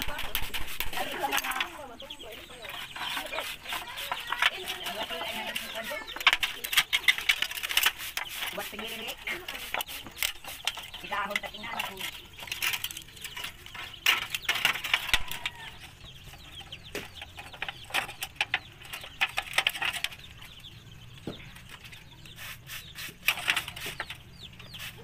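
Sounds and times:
chickens clucking: 0:00.0 - 0:25.0
sheet metal clicks and crinkles: 0:02.6 - 0:16.0, 0:16.6 - 0:20.5.

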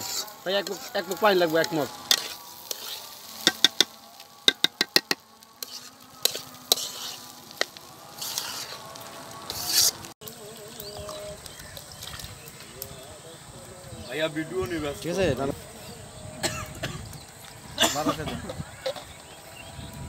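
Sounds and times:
metal spatula scraping steel pan: 0:00.0 - 0:08.8, 0:09.5 - 0:10.1
food sizzling: 0:00.0 - 0:20.0.

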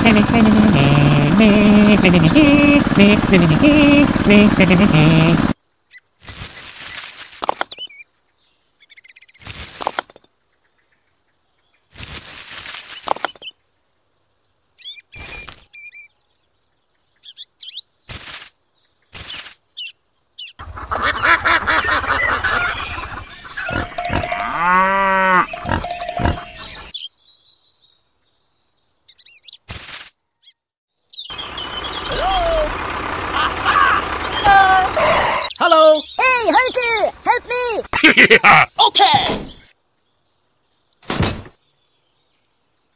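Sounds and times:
farm animal and bird calls: 0:00.0 - 0:04.2, 0:18.8 - 0:29.6, 0:30.3 - 0:42.9.

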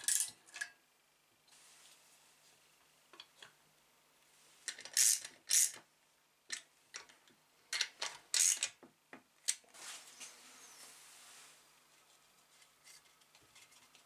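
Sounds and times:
ratchet clicking: 0:04.9 - 0:05.8, 0:08.3 - 0:08.7.

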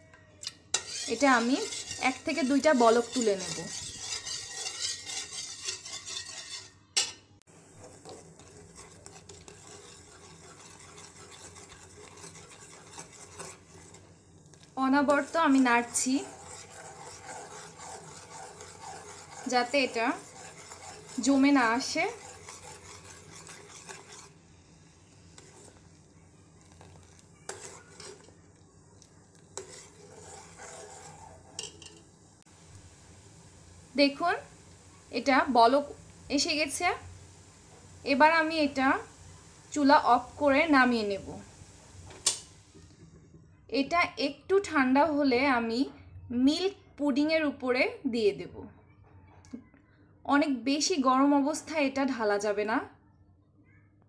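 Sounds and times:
metal spoon scraping pot: 0:00.4 - 0:14.1, 0:15.1 - 0:24.4, 0:25.4 - 0:26.0, 0:26.6 - 0:28.6, 0:29.5 - 0:32.0.

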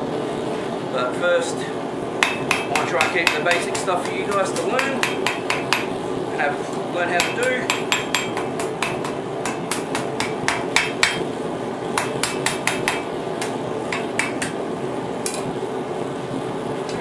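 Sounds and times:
hammer ringing on anvil: 0:02.2 - 0:05.9, 0:07.2 - 0:11.3, 0:12.0 - 0:14.6.

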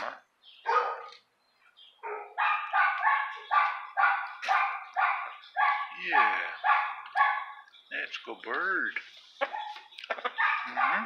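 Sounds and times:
dog barking: 0:00.6 - 0:01.2, 0:02.0 - 0:07.7, 0:09.4 - 0:11.0.

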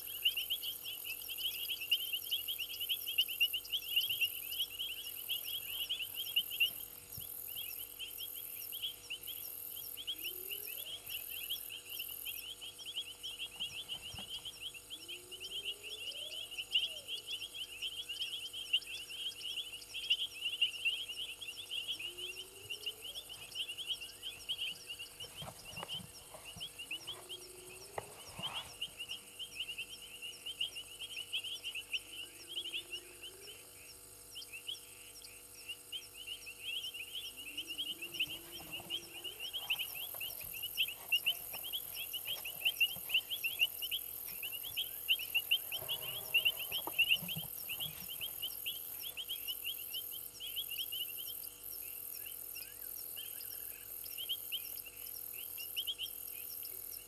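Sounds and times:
frogs trilling: 0:00.0 - 0:57.0
high insect hiss: 0:00.0 - 0:57.0
low rising frog calls: 0:36.8 - 0:49.9.

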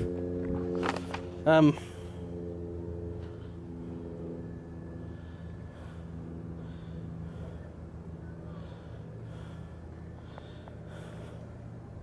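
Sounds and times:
steady low hum: 0:00.0 - 0:12.0
person breathing close up: 0:03.2 - 0:11.9.

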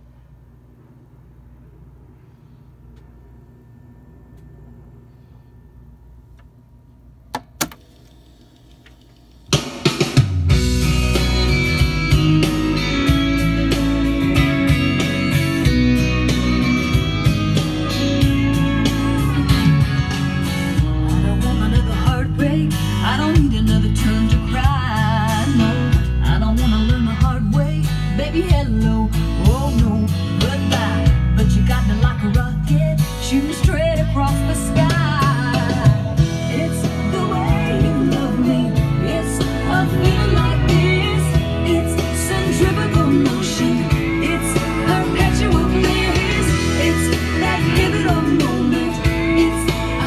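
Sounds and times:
tape hiss: 0:00.0 - 0:27.0
song with guitar drums and voice: 0:09.5 - 0:50.0.

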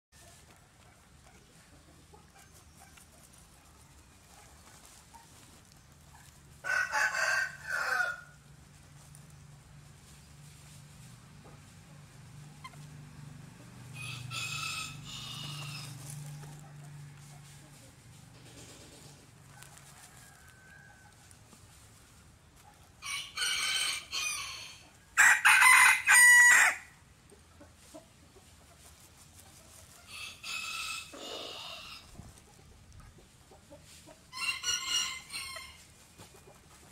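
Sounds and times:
rooster crowing: 0:06.6 - 0:08.4, 0:13.9 - 0:17.3, 0:19.5 - 0:21.3, 0:23.0 - 0:27.0, 0:30.1 - 0:32.1, 0:34.3 - 0:35.8.

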